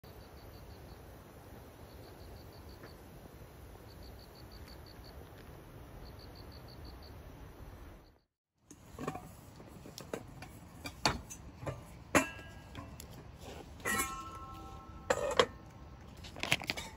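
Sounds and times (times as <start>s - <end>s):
steady outdoor hiss: 0.0s - 16.9s
insects chirping: 0.1s - 8.3s
metal pot and lid clinking: 10.4s - 13.0s, 13.8s - 15.8s.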